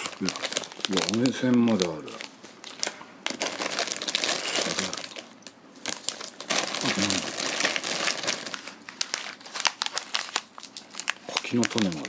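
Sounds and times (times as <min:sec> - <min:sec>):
foil snack packets rustling: 0:00.0 - 0:12.0.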